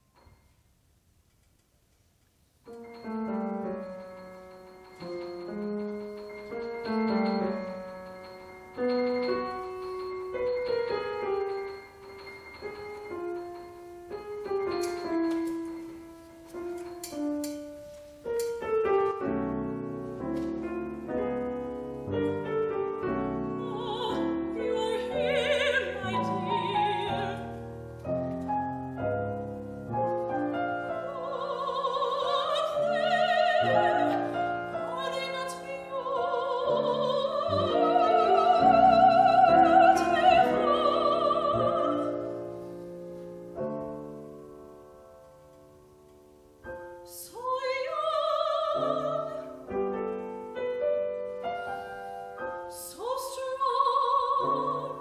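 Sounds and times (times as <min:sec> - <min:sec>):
grand piano playing: 0:02.6 - 0:55.0
woman singing operatically: 0:23.5 - 0:27.6, 0:30.9 - 0:42.3, 0:47.1 - 0:49.7, 0:52.7 - 0:55.0.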